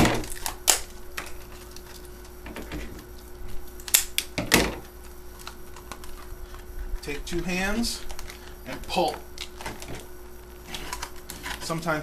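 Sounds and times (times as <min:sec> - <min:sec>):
scissors snipping plastic packaging: 0:00.0 - 0:02.4
plastic packaging rustling: 0:04.8 - 0:12.0.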